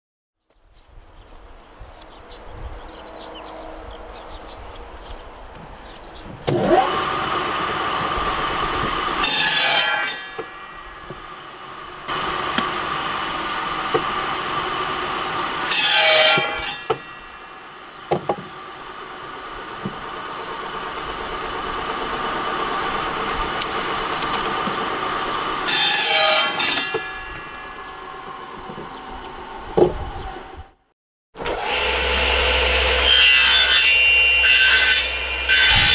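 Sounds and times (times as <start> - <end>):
saw cutting through log: 6.4 - 28.7, 31.4 - 35.9
saw bench motor running: 6.4 - 30.5, 31.4 - 35.9.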